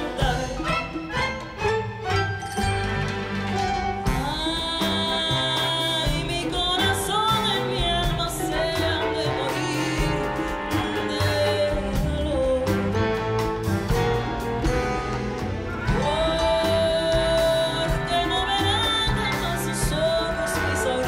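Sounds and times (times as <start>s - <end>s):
woman singing with vibrato: 0.0s - 1.3s, 4.0s - 13.4s, 15.8s - 21.0s
orchestra and band playing: 0.0s - 21.0s.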